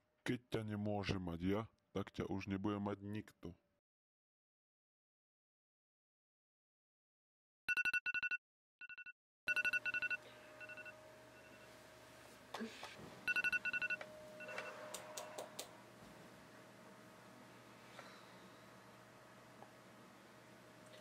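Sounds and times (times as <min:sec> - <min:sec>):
phone beeping: 0:07.7 - 0:11.7, 0:13.2 - 0:15.4.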